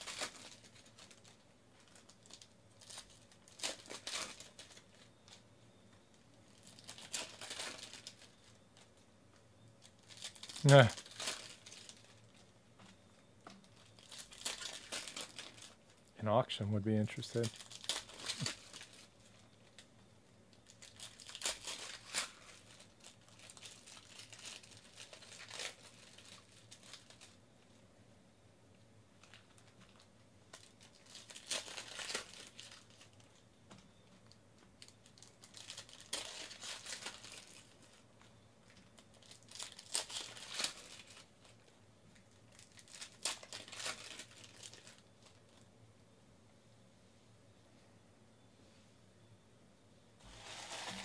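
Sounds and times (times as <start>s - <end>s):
foil wrappers crinkling and tearing: 0.0s - 5.5s, 6.5s - 9.0s, 9.8s - 13.0s, 13.6s - 16.1s, 17.1s - 19.9s, 20.5s - 27.4s, 29.2s - 33.4s, 34.2s - 45.7s, 50.2s - 51.0s.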